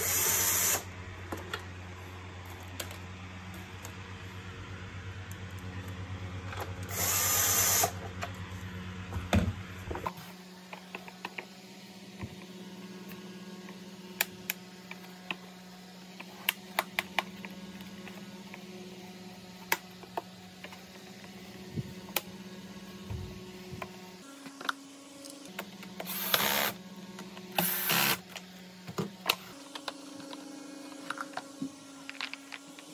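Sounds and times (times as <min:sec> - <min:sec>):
cordless drill driving screw: 0:06.9 - 0:08.0, 0:26.1 - 0:26.8, 0:27.6 - 0:28.2.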